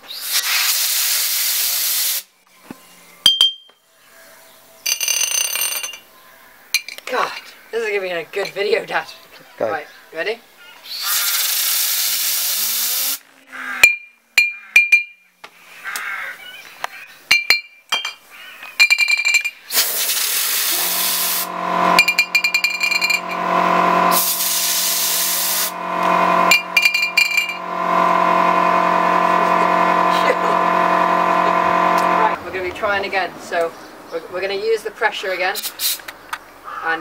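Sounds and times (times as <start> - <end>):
glassy clinks: 3.3 - 3.7
compressed air blow gun hissing: 11.2 - 13.2, 19.8 - 21.5, 24.1 - 25.8
steady machine hum: 19.8 - 32.7.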